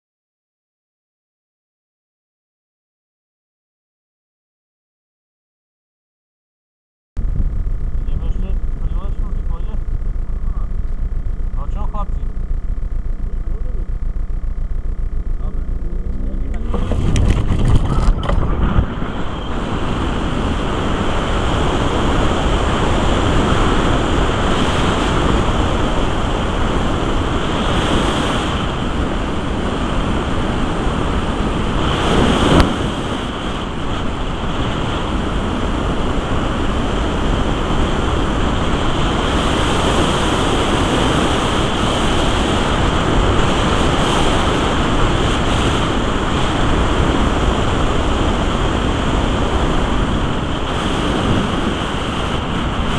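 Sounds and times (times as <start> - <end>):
wind rushing over microphone: 7.2 - 52.9.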